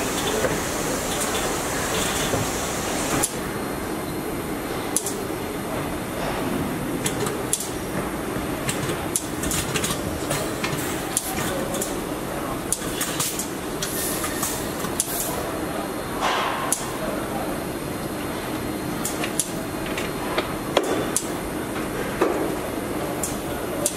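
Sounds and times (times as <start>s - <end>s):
machinery rumble: 0.0s - 3.2s.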